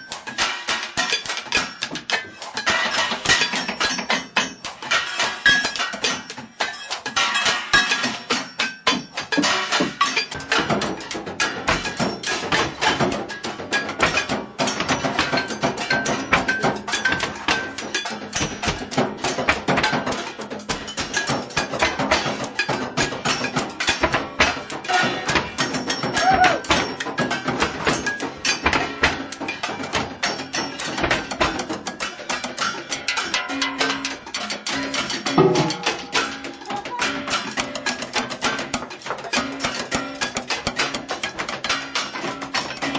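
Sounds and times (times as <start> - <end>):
drumming on kitchen objects: 0.0 - 42.9.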